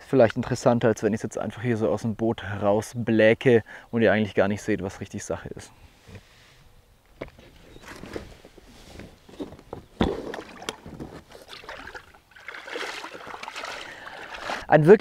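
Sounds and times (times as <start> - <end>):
water sloshing around boat: 7.4 - 14.8
knocks against hull: 9.7 - 11.3.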